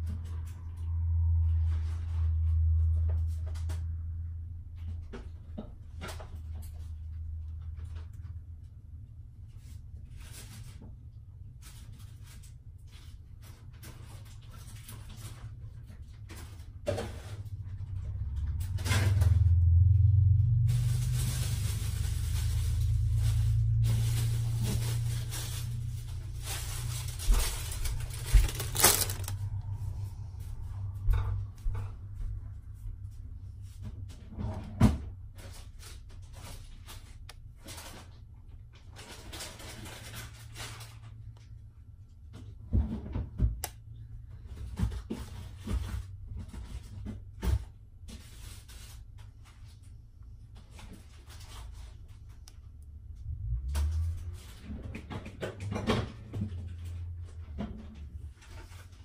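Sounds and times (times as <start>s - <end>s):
low steady hum: 0.0s - 59.0s
plastic bag crinkling: 20.7s - 29.8s.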